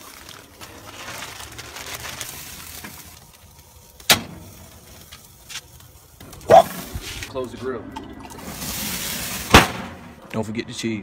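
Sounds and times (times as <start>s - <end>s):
liquid pouring into bag: 0.0s - 3.4s
plastic bag crinkling: 0.0s - 6.1s.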